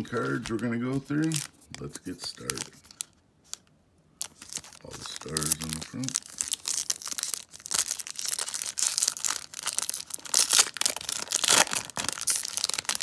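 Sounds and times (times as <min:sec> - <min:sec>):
foil wrapper crinkling: 0:04.2 - 0:13.0.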